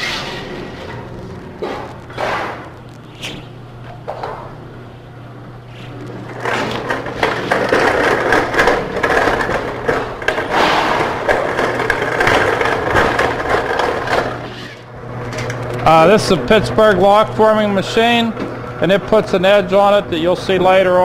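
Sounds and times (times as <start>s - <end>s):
machine motor humming: 0.0s - 21.0s
sheet metal rattling through rollers: 6.2s - 15.6s.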